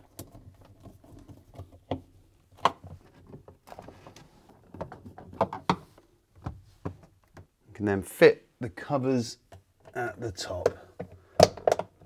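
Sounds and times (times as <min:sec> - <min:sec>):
plastic clicks and knocks: 0:04.5 - 0:07.5, 0:10.6 - 0:12.0.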